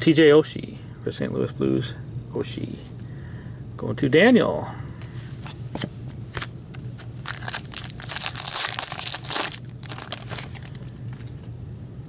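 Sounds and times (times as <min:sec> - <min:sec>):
wrapper crinkling and tearing: 0:06.4 - 0:11.0.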